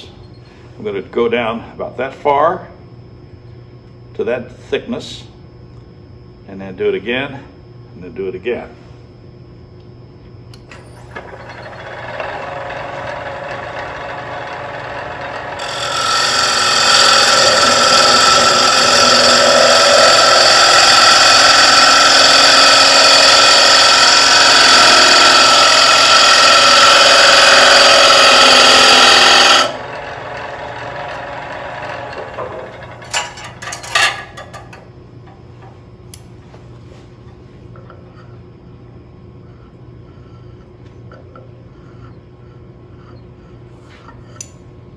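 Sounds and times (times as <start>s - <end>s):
gouge cutting wood on lathe: 11.1s - 33.1s.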